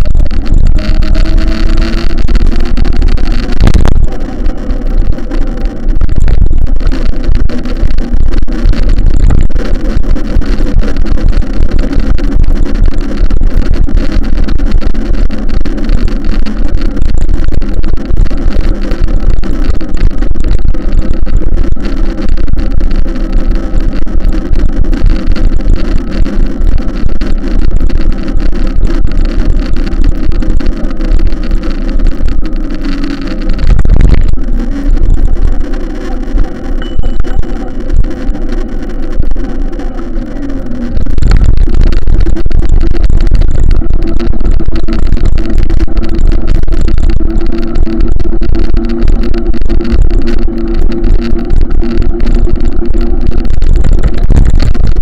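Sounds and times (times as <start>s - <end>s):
vehicle engine rumbling: 0.0s - 55.0s.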